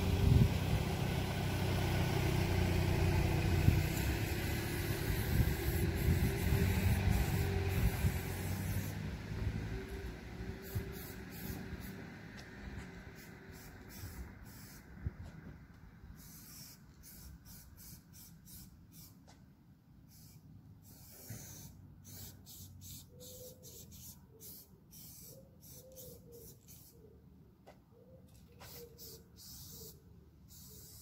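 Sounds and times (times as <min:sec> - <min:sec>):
spray-paint can hissing: 0:03.7 - 0:09.0, 0:10.6 - 0:12.0, 0:13.2 - 0:14.8, 0:16.2 - 0:19.2, 0:20.0 - 0:27.0, 0:28.6 - 0:31.0.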